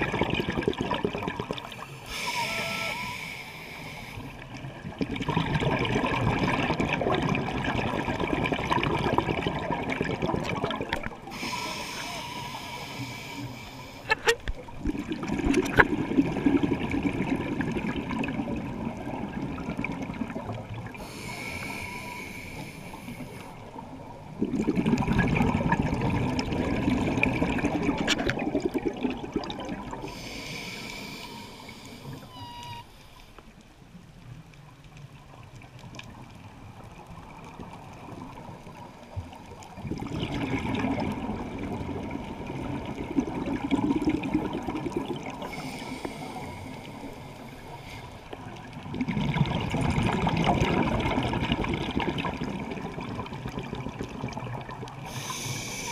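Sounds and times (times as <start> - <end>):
bubbling exhaled air: 0.0 - 32.8, 38.7 - 55.9
scuba regulator hissing inhalations: 1.8 - 4.4, 11.3 - 14.2, 21.0 - 23.6, 30.0 - 33.4, 45.4 - 48.3, 55.0 - 55.9.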